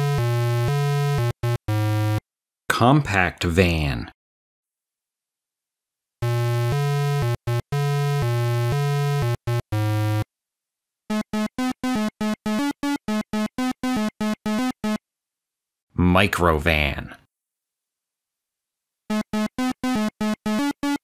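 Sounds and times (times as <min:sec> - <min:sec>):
low buzzy chiptune tones: 0:00.0 - 0:02.2, 0:06.2 - 0:10.2, 0:11.1 - 0:15.0, 0:19.1 - 0:21.0
rapid high beeps: 0:06.2 - 0:10.2, 0:11.1 - 0:15.0, 0:19.1 - 0:21.0.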